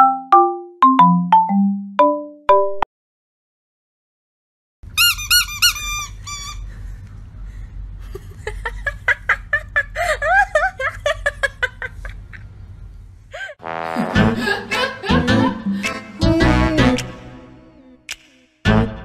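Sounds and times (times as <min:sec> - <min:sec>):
low steady hum: 0:04.9 - 0:17.9
dog whimpering squeaks: 0:05.0 - 0:06.7.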